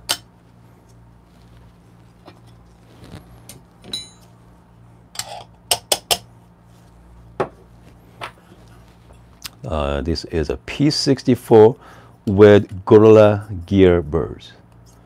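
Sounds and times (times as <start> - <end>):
low steady hum: 0.0 - 15.0
metal tools clinking on wood: 3.8 - 4.3.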